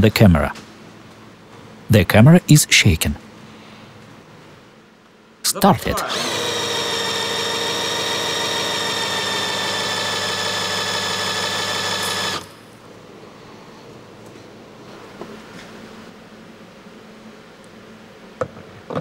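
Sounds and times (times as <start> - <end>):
cordless drill whining: 6.0 - 12.6.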